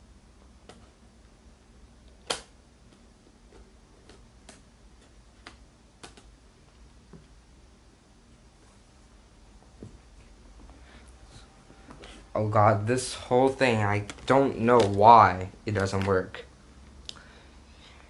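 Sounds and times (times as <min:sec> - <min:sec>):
laptop parts clicking and tapping: 0:04.0 - 0:06.3.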